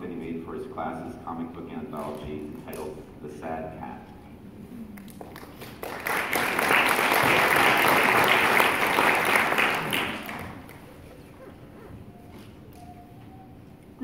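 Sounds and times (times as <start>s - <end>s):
audience applauding: 5.0s - 11.4s.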